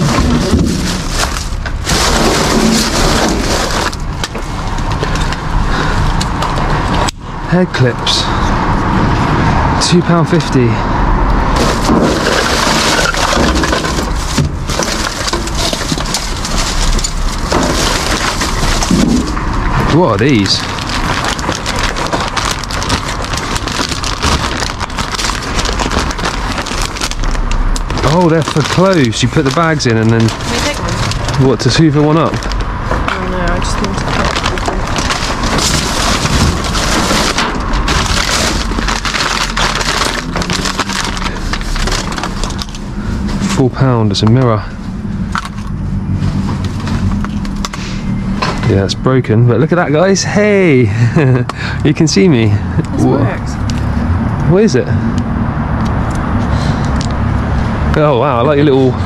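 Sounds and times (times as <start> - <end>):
plastic bags and paper rustling: 0.0 - 7.0, 11.5 - 48.9.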